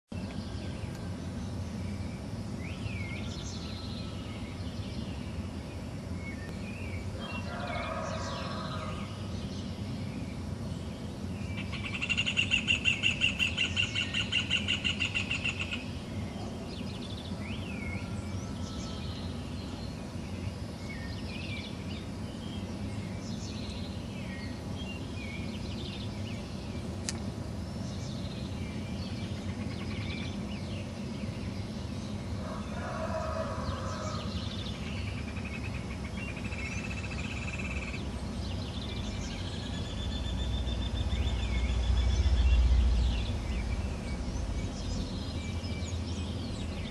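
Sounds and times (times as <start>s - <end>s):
birds chirping: 0.1s - 46.9s
steady low rumble: 33.4s - 46.9s.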